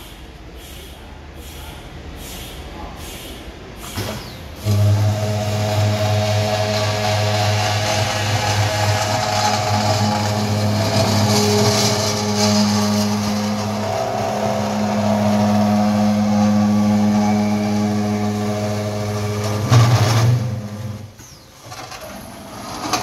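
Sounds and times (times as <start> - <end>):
saw motor hum: 4.6 - 21.1
saw blade cutting metal: 4.7 - 20.6.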